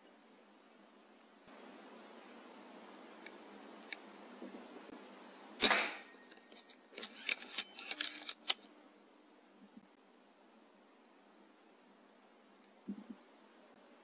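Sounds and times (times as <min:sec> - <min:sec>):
air rifle shot crack: 0:05.6 - 0:06.1.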